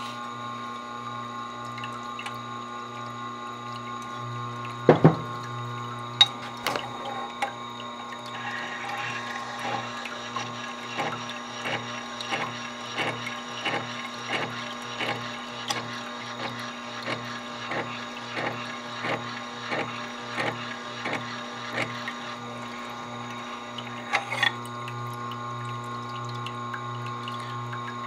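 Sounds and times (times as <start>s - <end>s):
sharpening wheel humming: 8.3s - 15.8s.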